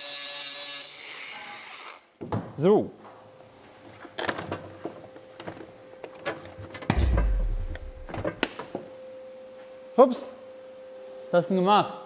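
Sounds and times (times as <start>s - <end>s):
loud low electrical buzz: 6.9s - 9.3s.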